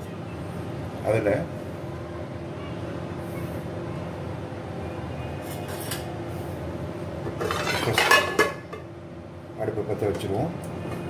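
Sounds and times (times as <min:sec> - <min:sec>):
frying pan scraping on metal: 0:07.3 - 0:08.6.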